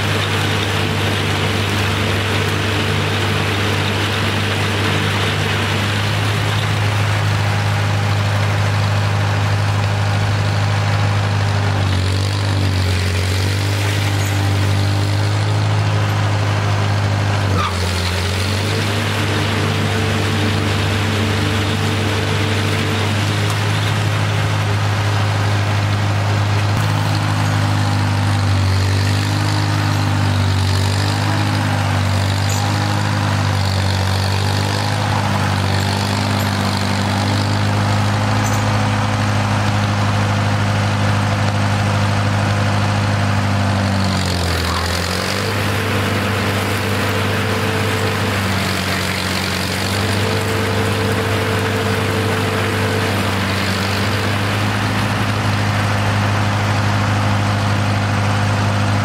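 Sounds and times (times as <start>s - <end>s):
mower cutting tall grass: 0.0s - 59.0s
tractor engine running: 0.0s - 59.0s.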